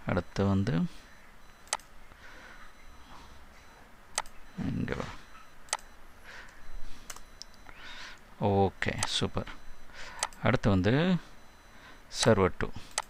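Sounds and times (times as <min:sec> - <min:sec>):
computer mouse clicks: 0:01.6 - 0:01.9, 0:05.7 - 0:05.9, 0:07.1 - 0:07.8
low hum of a voice: 0:04.6 - 0:05.3.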